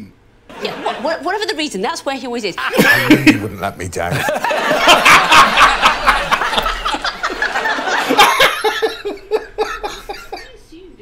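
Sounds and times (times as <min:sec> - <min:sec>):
audience laughing: 0:00.5 - 0:01.2, 0:04.1 - 0:10.6
man laughing close to microphone: 0:04.1 - 0:10.4.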